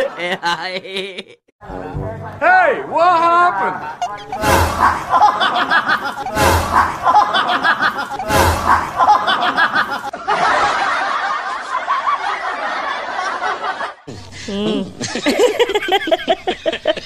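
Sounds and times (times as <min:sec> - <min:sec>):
person snickering and chuckling: 0:00.0 - 0:01.4, 0:04.0 - 0:10.1, 0:14.1 - 0:17.0.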